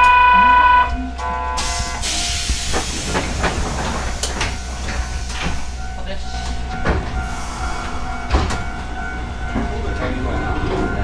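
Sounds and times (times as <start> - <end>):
departure buzzer: 0.0 - 2.0
air brake hiss: 1.6 - 3.5, 7.2 - 8.1
tram knocks starting to move: 1.6 - 11.0.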